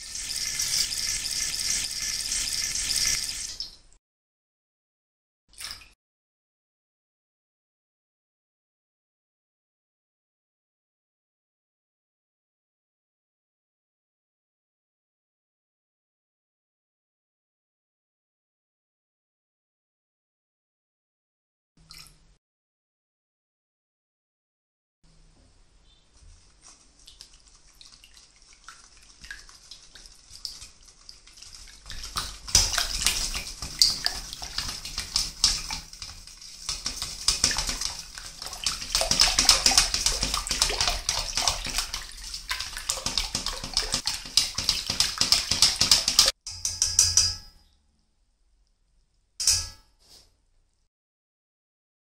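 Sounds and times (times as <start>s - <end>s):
whisk clicking in metal bowl: 28.6s - 47.5s.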